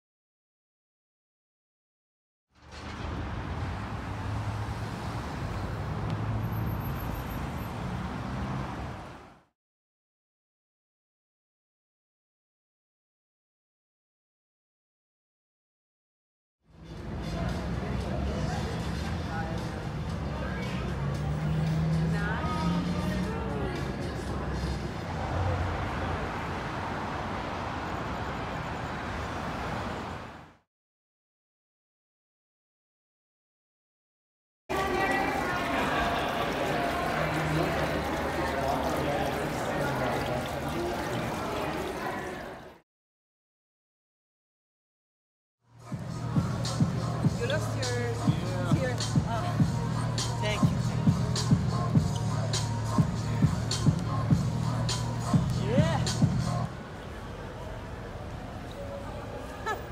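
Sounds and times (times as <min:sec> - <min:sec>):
car engines rumbling: 0:02.6 - 0:09.5, 0:16.7 - 0:30.6, 0:34.7 - 0:42.7, 0:45.7 - 0:59.9
road traffic hiss: 0:02.8 - 0:09.5, 0:16.7 - 0:30.6, 0:34.7 - 0:42.7, 0:45.7 - 0:59.9.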